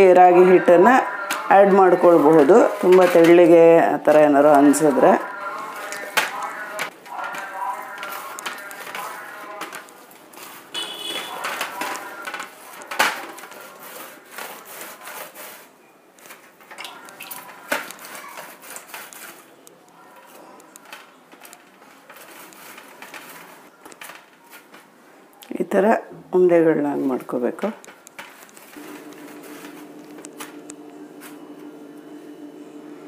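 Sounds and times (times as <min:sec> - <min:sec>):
dough squelching by hand: 0:00.0 - 0:24.9.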